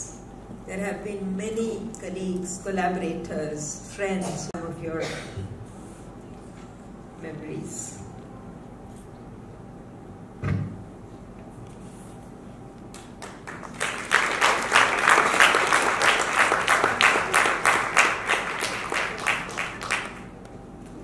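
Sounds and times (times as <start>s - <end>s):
thump: 10.4s - 10.8s
audience applause: 13.0s - 20.4s.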